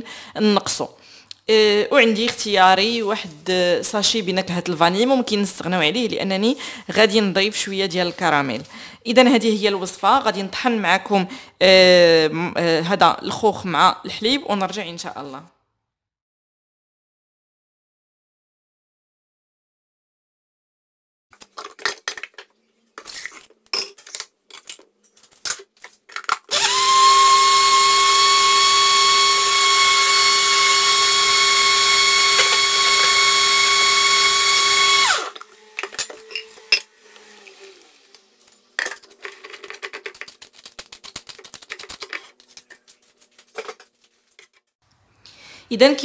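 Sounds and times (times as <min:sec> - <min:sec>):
blender motor whining: 0:26.5 - 0:38.3.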